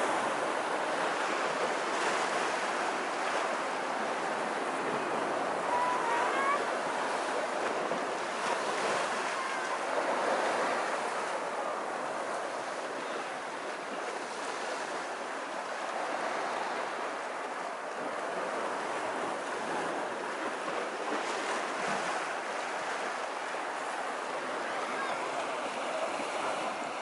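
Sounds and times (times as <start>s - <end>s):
small waves washing on sand: 0.0s - 27.0s.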